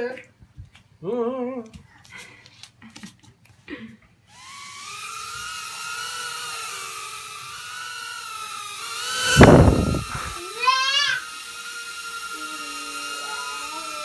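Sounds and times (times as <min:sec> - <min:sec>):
quadcopter motors whining: 0:04.3 - 0:14.0
loud short rush of noise: 0:09.2 - 0:10.4.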